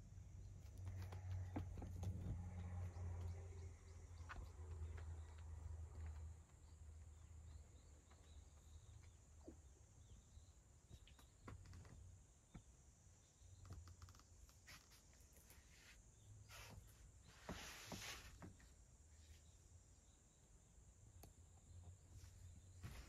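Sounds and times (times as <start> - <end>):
faint low hum: 0.0 - 23.0
faint clicks and ticks: 13.4 - 15.0.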